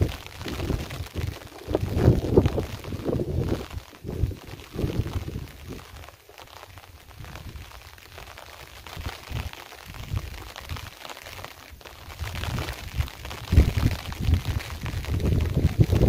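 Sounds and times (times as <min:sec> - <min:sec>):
wind buffeting microphone: 0:00.0 - 0:05.9, 0:12.2 - 0:16.0.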